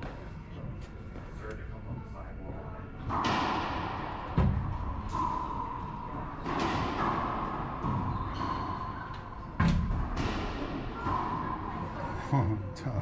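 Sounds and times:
racquet hitting ball: 3.1s - 11.8s.

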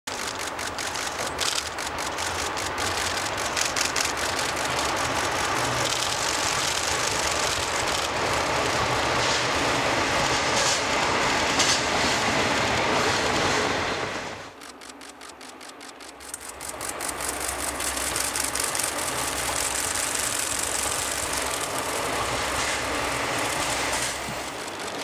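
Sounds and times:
rapid clicks: 0.1s - 9.3s, 14.5s - 25.0s
diesel locomotive engines running: 0.1s - 25.0s
train rumbling over rails: 0.1s - 25.0s.

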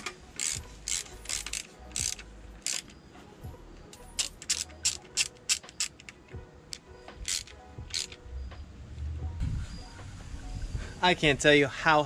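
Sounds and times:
hand ratchet clicking: 0.0s - 3.0s, 4.0s - 8.2s.

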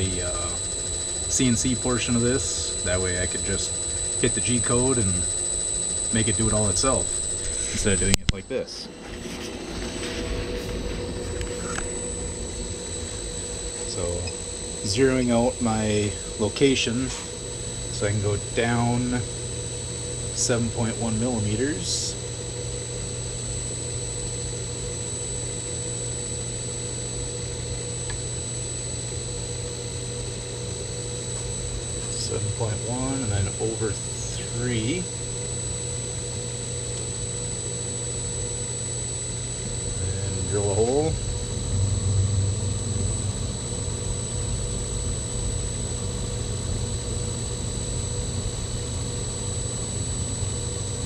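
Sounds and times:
milling machine humming and whining: 0.0s - 51.0s.

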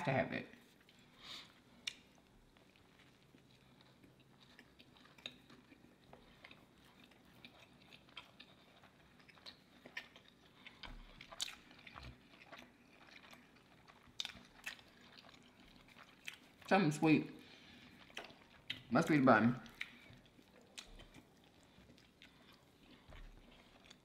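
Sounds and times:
soft crunches of chewing: 0.4s - 24.0s
mouth clicks while chewing: 1.7s - 3.2s, 18.1s - 18.9s.

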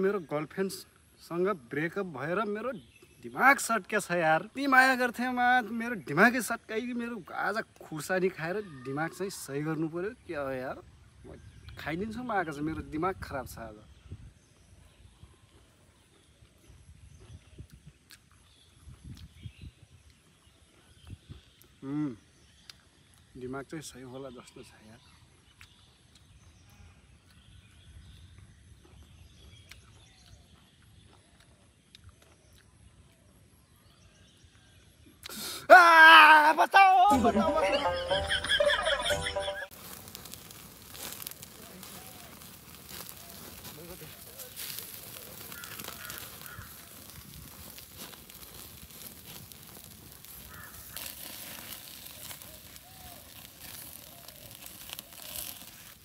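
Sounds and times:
faint outdoor background noise: 0.0s - 56.0s
crow cawing: 45.4s - 47.1s, 50.4s - 51.2s.

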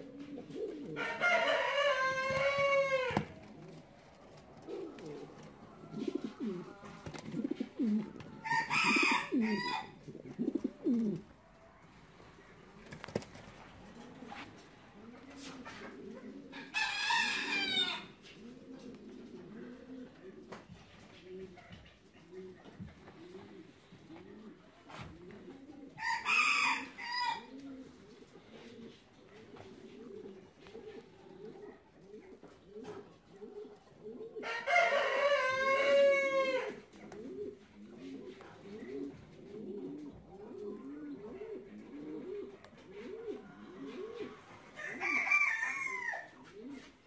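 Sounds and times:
pigeons cooing: 0.0s - 11.4s, 12.8s - 47.0s
rooster crowing: 1.0s - 3.4s, 8.4s - 9.9s, 16.7s - 18.1s, 26.0s - 27.5s, 34.4s - 36.8s, 44.8s - 46.3s.

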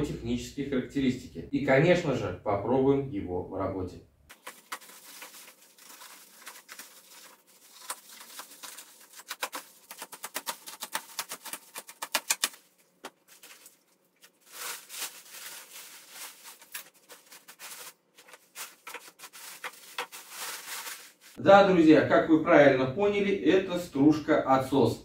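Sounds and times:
plastic film crackling: 4.3s - 21.4s.

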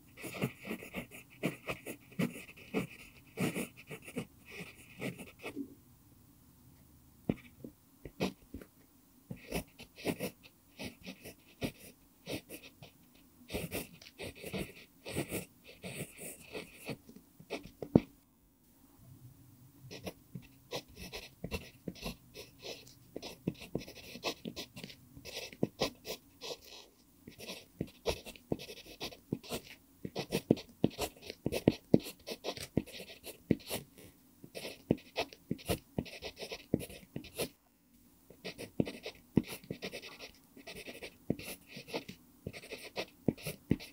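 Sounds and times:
pencil scratching on paper: 0.1s - 5.6s, 9.3s - 18.0s, 19.9s - 37.6s, 38.3s - 43.9s.

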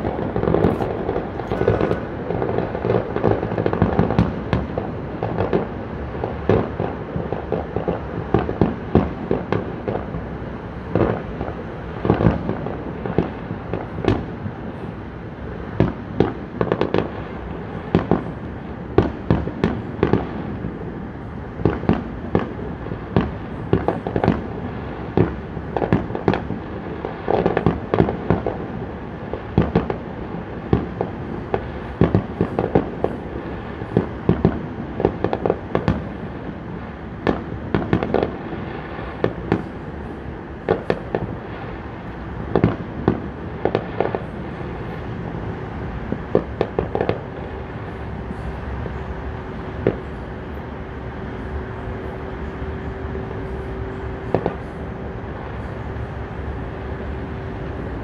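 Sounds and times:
continuous background noise: 0.0s - 58.0s
distant fireworks bangs and pops: 0.0s - 58.0s.

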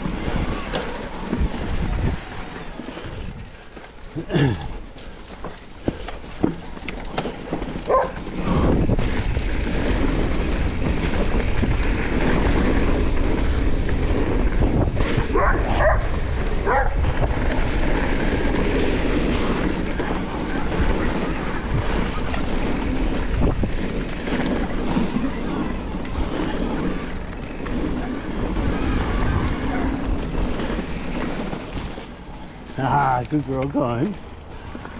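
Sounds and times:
bike tyres rolling on dirt: 0.0s - 34.9s
wind rushing on camera: 0.0s - 34.9s
dog barking: 7.9s - 8.2s, 15.3s - 17.0s.

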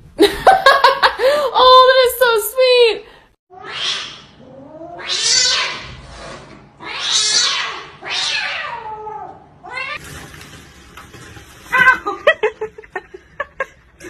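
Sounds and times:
cat yowling: 3.5s - 5.9s, 6.8s - 10.0s.

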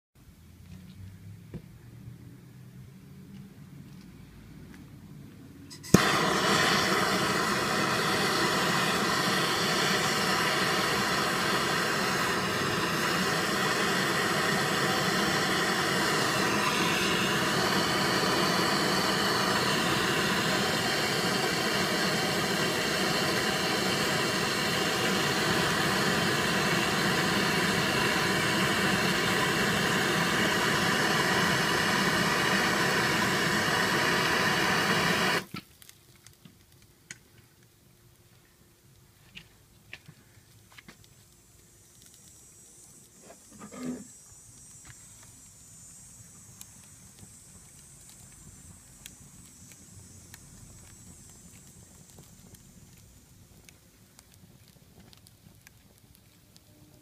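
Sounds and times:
blowtorch hissing: 5.7s - 35.6s, 40.9s - 56.4s.

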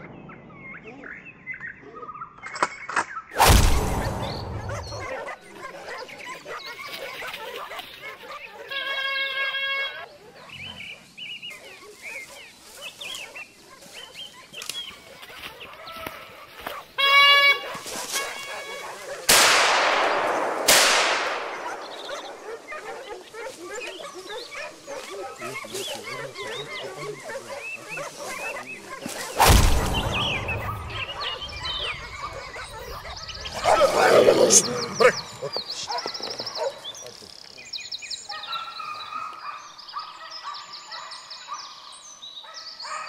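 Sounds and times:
gunshot with rumbling echo: 3.4s - 5.1s, 19.3s - 22.7s, 29.4s - 33.0s
faint sharp cracks: 19.2s - 22.9s
high yelping calls: 21.0s - 37.2s.

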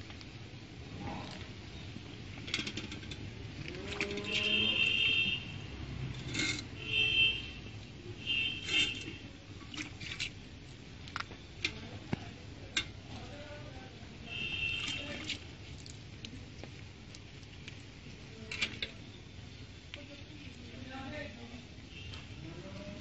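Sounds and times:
milk spurting into steel bucket: 3.6s - 4.9s.

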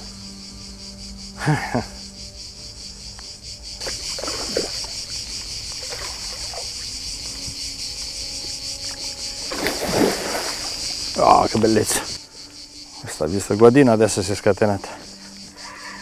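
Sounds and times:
insect chorus chirring: 0.0s - 16.0s
fish splashing at the surface: 3.8s - 4.9s, 9.5s - 10.8s.

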